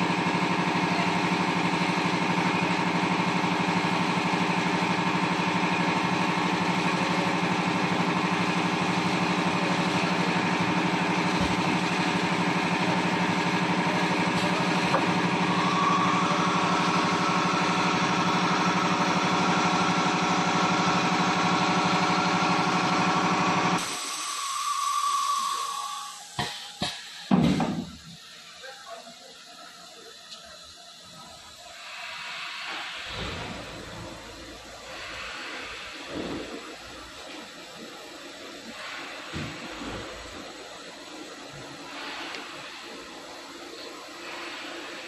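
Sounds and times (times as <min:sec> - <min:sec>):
machine drone: 0:00.0 - 0:26.5
higher machine whine: 0:07.2 - 0:26.4.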